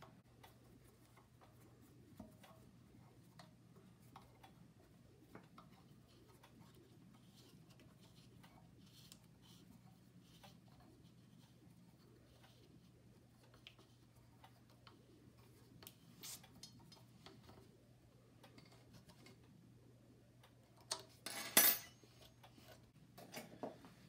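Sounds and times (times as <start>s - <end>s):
metal tools clinking: 21.2s - 22.0s.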